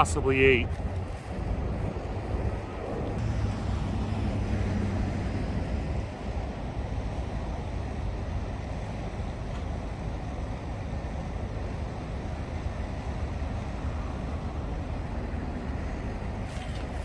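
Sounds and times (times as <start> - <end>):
wind on microphone: 0.0 - 8.2
distant road traffic: 0.0 - 17.0.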